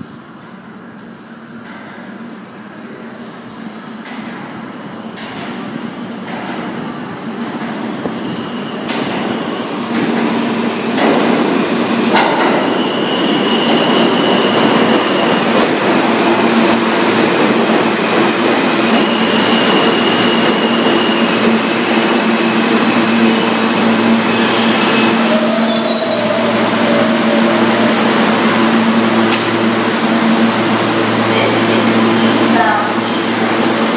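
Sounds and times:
train wheels rumbling on rail: 0:00.0 - 0:33.9
high wheel squeal: 0:12.5 - 0:15.5, 0:18.8 - 0:29.1.

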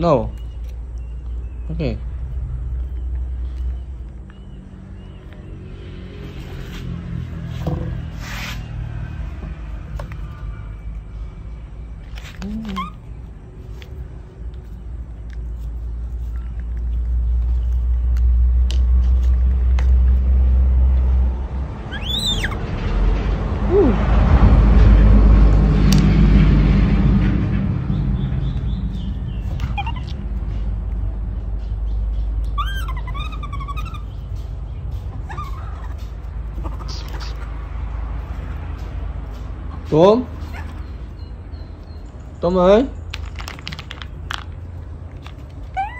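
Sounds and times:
baby monkey cooing: 0:12.4 - 0:13.1, 0:21.9 - 0:22.6, 0:29.6 - 0:30.3, 0:32.5 - 0:34.2, 0:35.1 - 0:37.6
loud steady low rumble: 0:22.6 - 0:32.5.

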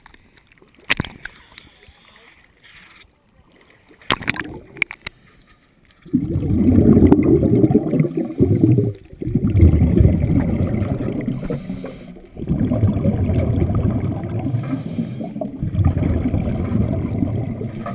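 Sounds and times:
underwater bubbling: 0:03.5 - 0:05.2, 0:06.0 - 0:17.9.

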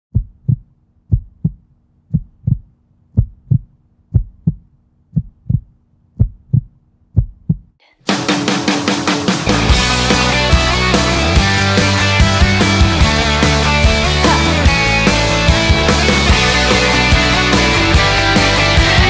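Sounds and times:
heartbeat thumps: 0:00.1 - 0:07.8
loud rock music: 0:08.1 - 0:19.0.

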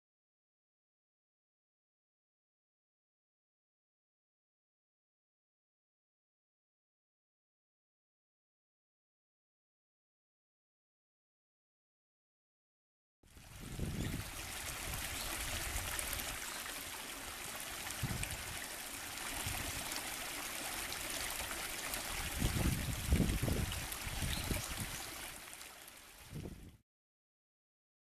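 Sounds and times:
brook babbling over weir: 0:13.3 - 0:26.7.

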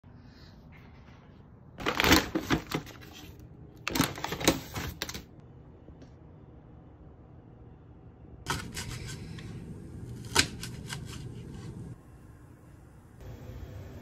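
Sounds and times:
packaging crinkling and rustling: 0:01.8 - 0:05.3.

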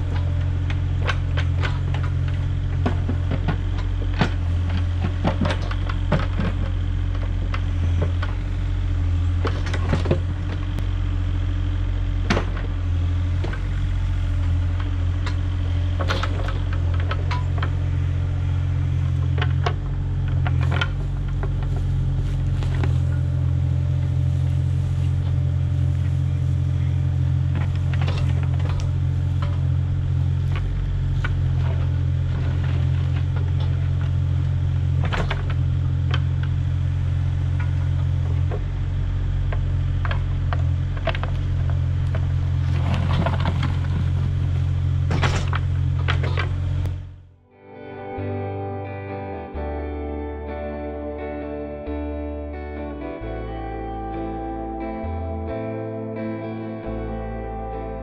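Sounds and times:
stones and dirt clattering: 0:00.0 - 0:10.8, 0:12.2 - 0:38.7, 0:39.4 - 0:46.9
diesel excavator engine running: 0:00.0 - 0:55.6
bucket digging rocky soil: 0:41.4 - 0:46.6.

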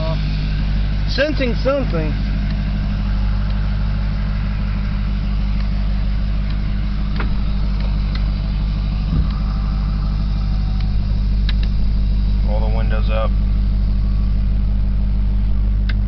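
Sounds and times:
pickup truck engine idling: 0:00.0 - 0:16.0
brief thump: 0:09.1 - 0:09.6.

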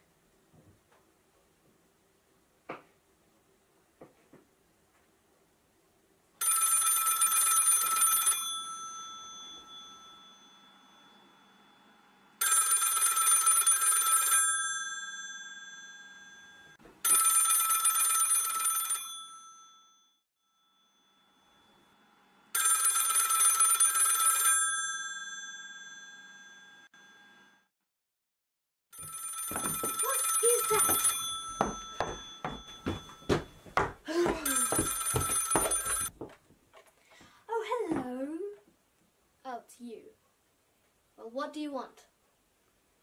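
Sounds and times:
telephone bell ringing: 0:06.4 - 0:27.7, 0:29.0 - 0:36.2.

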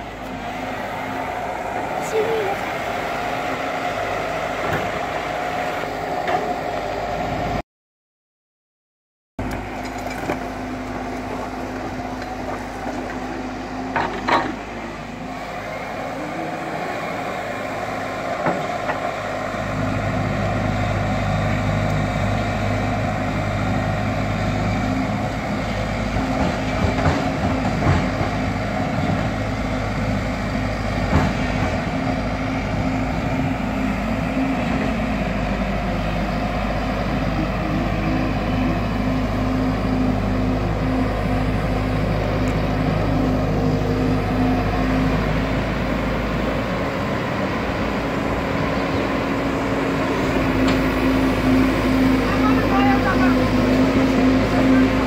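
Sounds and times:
excavator diesel engine running: 0:00.0 - 0:07.6, 0:09.4 - 0:55.0.

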